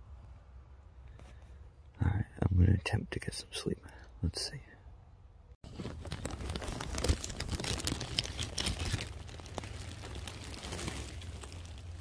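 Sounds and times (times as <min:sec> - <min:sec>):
plastic bag crinkling: 0:05.6 - 0:12.0.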